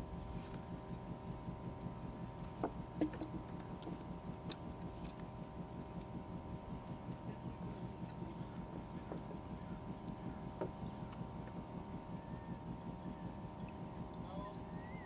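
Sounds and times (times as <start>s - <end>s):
boat engine humming: 0.0s - 15.0s
light clicks and knocks: 8.0s - 9.4s.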